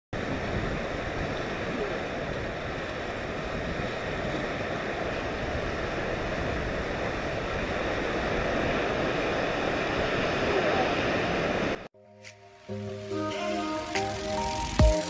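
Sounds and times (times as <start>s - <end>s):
sea surf washing against rocks: 0.2s - 11.9s.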